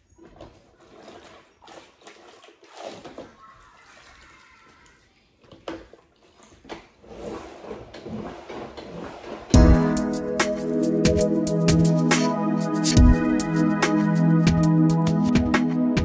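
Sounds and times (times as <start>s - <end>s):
water swishing in a bucket: 0.0s - 9.6s
bucket and mop knocking: 7.9s - 12.2s.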